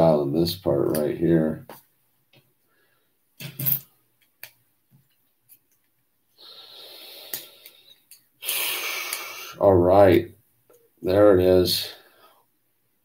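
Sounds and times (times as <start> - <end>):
man breathing near microphone: 6.4 - 9.6
sniff: 6.4 - 9.6.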